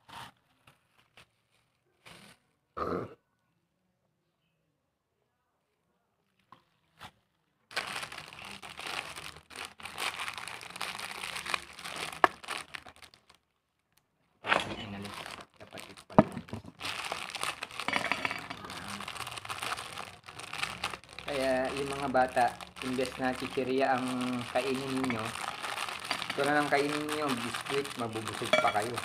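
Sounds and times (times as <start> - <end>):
plastic wrappers rustling: 0.0 - 2.4, 7.7 - 13.9, 14.5 - 29.0.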